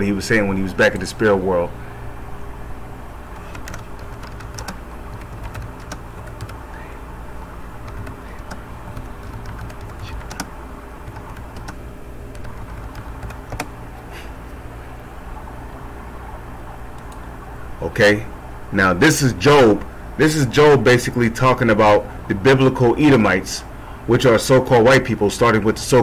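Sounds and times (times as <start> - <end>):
low background hum: 0.0 - 26.0
keyboard key clicks: 12.4 - 13.7.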